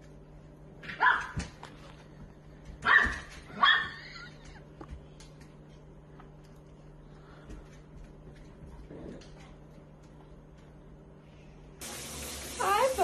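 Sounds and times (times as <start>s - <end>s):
dog barking: 0.9s - 1.4s, 2.8s - 4.0s.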